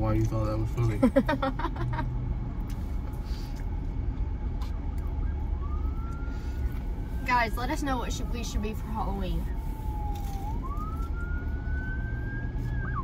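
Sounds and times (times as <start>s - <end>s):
low rumble inside car: 0.0s - 13.0s
siren wailing: 4.6s - 13.0s.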